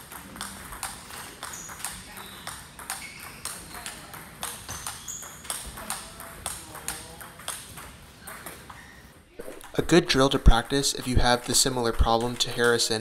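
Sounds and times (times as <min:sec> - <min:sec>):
ping pong ball clicking: 0:00.0 - 0:08.7.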